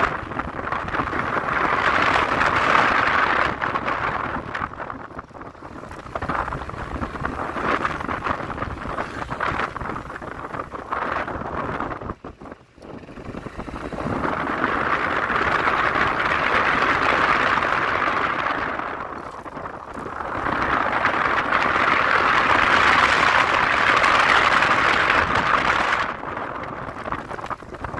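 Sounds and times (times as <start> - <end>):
scooter engine running: 0.0 - 27.9
wind rushing over microphone: 0.0 - 27.9.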